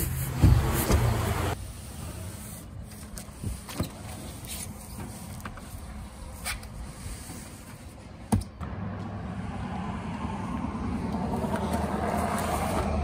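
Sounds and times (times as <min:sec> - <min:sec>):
passing vehicle rumble: 0:08.6 - 0:13.0.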